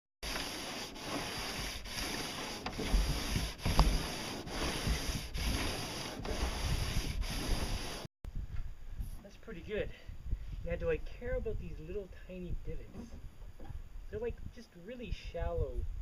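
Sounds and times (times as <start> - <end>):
sanding block rubbing on hull: 0.2 - 8.1.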